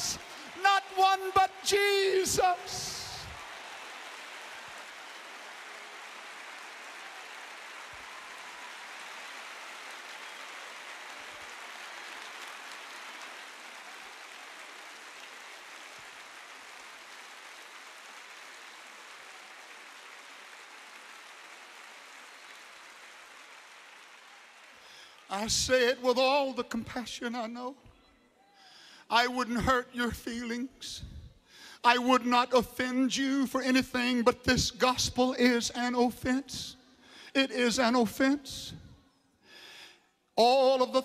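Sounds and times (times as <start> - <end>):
large crowd applauding: 0.0 - 29.4.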